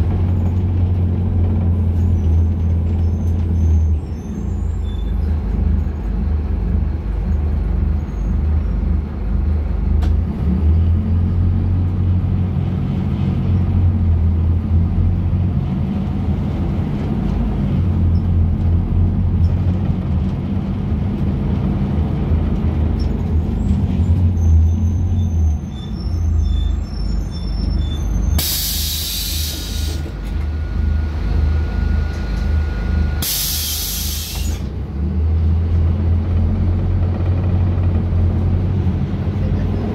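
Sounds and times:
bus diesel engine running: 0:00.0 - 0:39.9
compressed air hiss: 0:28.4 - 0:30.0, 0:33.2 - 0:34.6.

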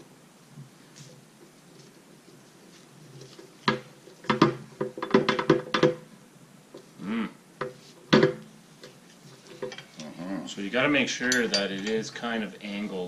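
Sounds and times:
metal pipe knocking on table: 0:07.6 - 0:08.4.

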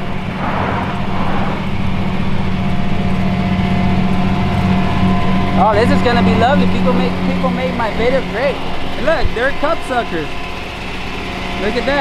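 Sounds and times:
truck engine idling: 0:00.0 - 0:12.0
brief rush of noise: 0:00.3 - 0:01.8.

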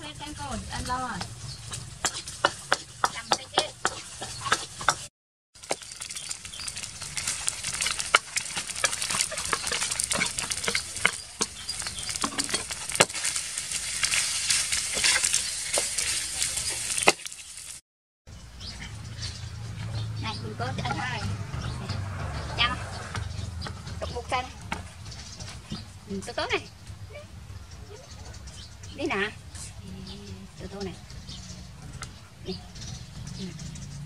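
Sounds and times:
rice and egg sizzling in wok: 0:00.0 - 0:17.8
metal spatula scraping a pan: 0:05.8 - 0:17.3.

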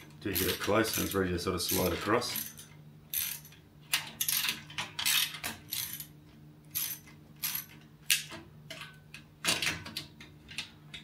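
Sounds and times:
hand ratchet clicking: 0:00.0 - 0:03.6, 0:04.2 - 0:06.1, 0:06.7 - 0:08.3.

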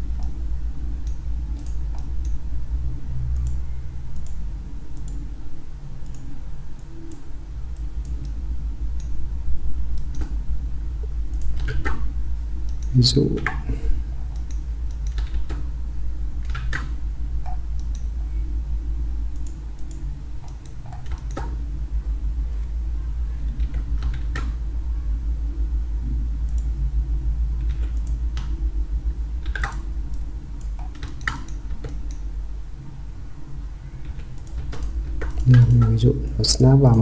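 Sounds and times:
steady low hum: 0:00.0 - 0:37.0
keyboard and mouse clicking: 0:01.0 - 0:02.4, 0:03.3 - 0:05.2, 0:06.0 - 0:08.4, 0:11.3 - 0:12.0, 0:14.3 - 0:15.6, 0:16.4 - 0:18.1, 0:19.3 - 0:21.6, 0:29.4 - 0:32.2, 0:34.0 - 0:36.0.

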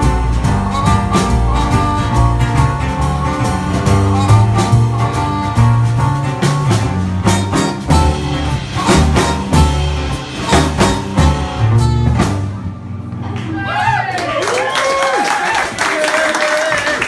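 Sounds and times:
trumpet: 0:00.0 - 0:05.8, 0:07.2 - 0:12.5
drum strikes: 0:00.0 - 0:13.6.

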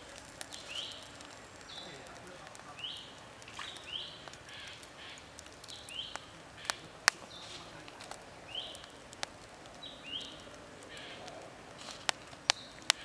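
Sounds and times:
charcoal embers popping: 0:00.0 - 0:13.0
bird chirping: 0:00.4 - 0:07.8, 0:08.4 - 0:09.0, 0:09.7 - 0:11.4, 0:12.3 - 0:13.0.

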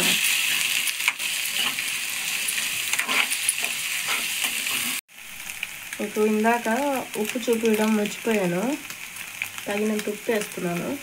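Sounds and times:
spatula scraping metal pan: 0:00.0 - 0:05.0
greens and egg sizzling: 0:00.0 - 0:11.0.

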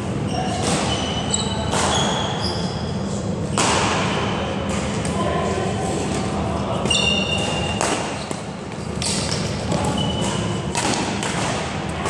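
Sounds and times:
shoes squeaking on hall floor: 0:00.0 - 0:05.0, 0:06.8 - 0:11.0
racket striking shuttlecock: 0:07.4 - 0:12.0.

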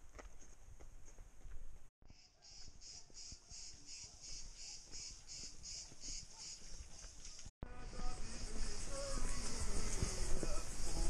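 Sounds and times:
insect chirping: 0:02.1 - 0:07.4.

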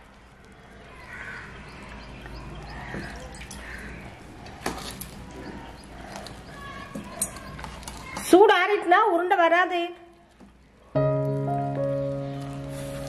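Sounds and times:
crow-like bird cawing: 0:00.8 - 0:04.4.

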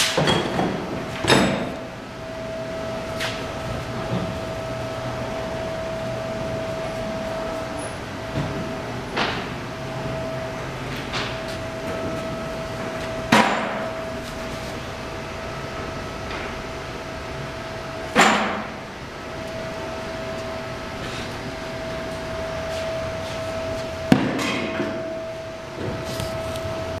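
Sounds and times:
steady hum: 0:00.0 - 0:27.0
constant whine: 0:00.2 - 0:27.0
sharp metallic bangs: 0:13.2 - 0:14.1, 0:23.6 - 0:25.2.

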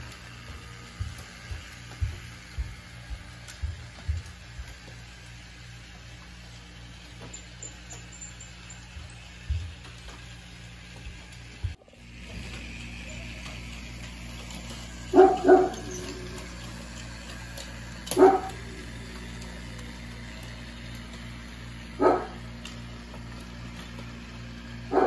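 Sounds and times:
toy train motor humming: 0:00.0 - 0:25.0
dog barking: 0:15.1 - 0:16.2, 0:18.1 - 0:18.6, 0:22.0 - 0:22.4.

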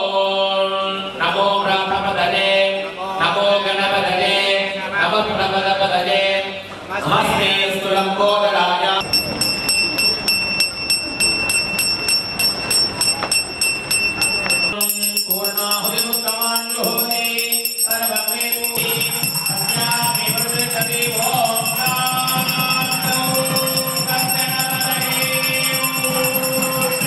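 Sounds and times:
devotional singing with music: 0:00.0 - 0:09.1, 0:14.7 - 0:27.0
hand bell ringing rapidly: 0:09.0 - 0:27.0.

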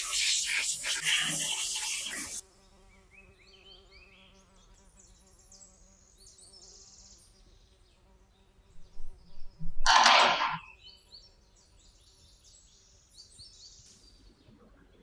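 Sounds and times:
compressed air hissing: 0:00.0 - 0:02.4.

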